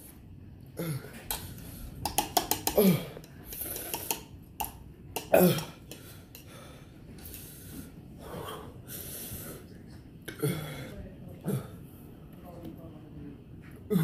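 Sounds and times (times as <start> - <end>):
man breathing hard and sniffing: 5.9 - 9.7.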